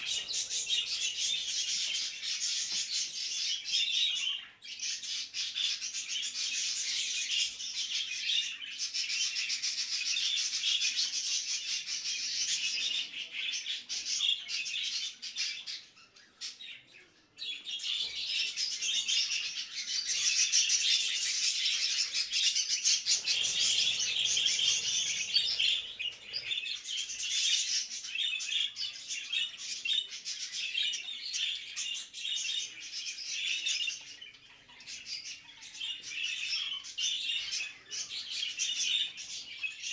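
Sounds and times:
budgerigars chattering: 18.3 - 29.0.

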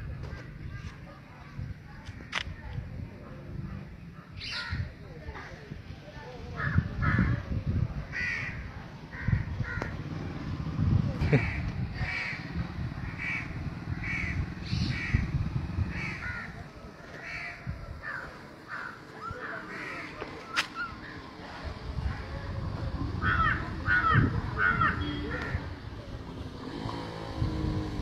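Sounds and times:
crows cawing: 11.4 - 15.2, 17.2 - 20.2.

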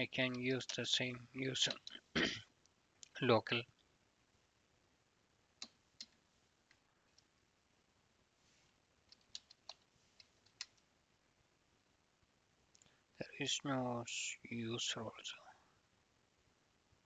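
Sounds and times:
keystrokes on computer keyboard: 9.1 - 10.8.

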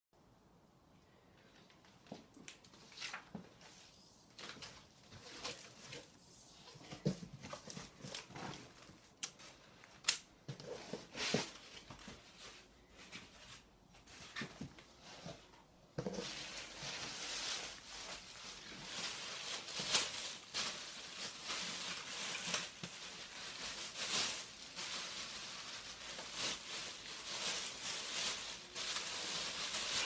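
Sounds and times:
cardboard scraping and crinkling: 2.8 - 9.6, 10.5 - 25.0
plastic bag rustling: 3.4 - 9.8, 10.6 - 30.0.

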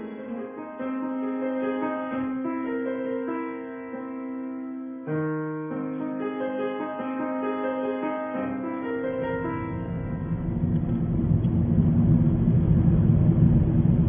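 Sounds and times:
solo piano music: 0.0 - 14.0
car driving rumble inside cabin: 9.9 - 14.0.

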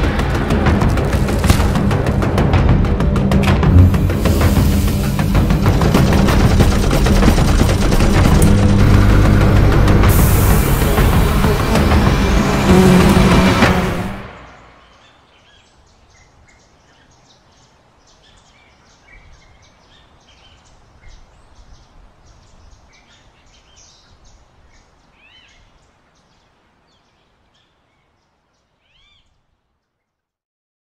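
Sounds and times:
birds chirping: 8.2 - 30.2.

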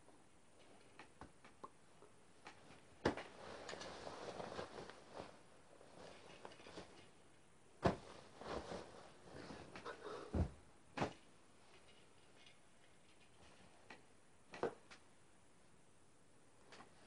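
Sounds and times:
clothes rustling: 2.5 - 13.9.

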